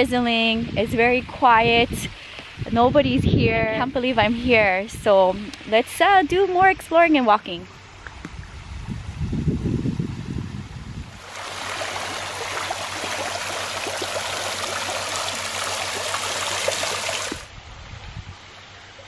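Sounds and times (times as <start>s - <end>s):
running water rushing: 11.0s - 19.0s.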